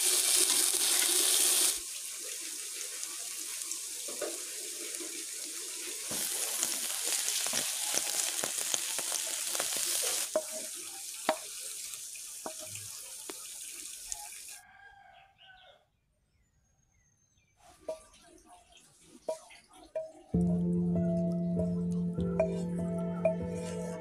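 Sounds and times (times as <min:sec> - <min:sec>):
sauce sizzling in frying pan: 0:00.0 - 0:14.5
spatula clacking and scraping pan: 0:10.3 - 0:11.4.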